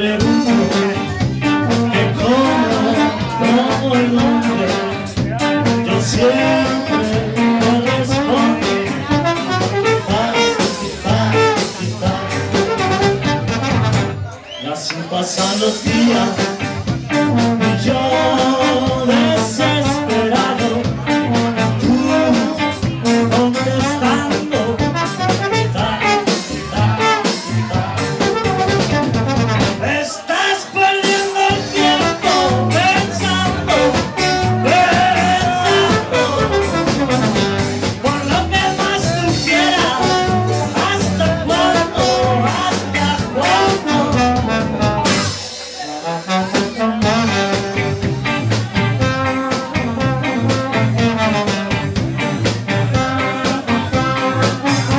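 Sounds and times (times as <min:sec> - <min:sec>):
steady drum beat: 0:00.0 - 0:14.2, 0:15.4 - 0:29.9, 0:31.0 - 0:54.9
trombone: 0:00.0 - 0:14.4, 0:15.4 - 0:30.0, 0:31.0 - 0:54.9
electric guitars: 0:00.0 - 0:30.1, 0:30.7 - 0:54.9.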